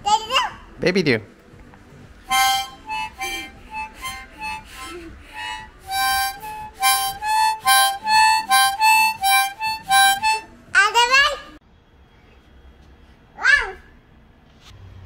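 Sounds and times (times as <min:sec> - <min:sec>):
reed wind instrument short notes: 0:02.3 - 0:10.5.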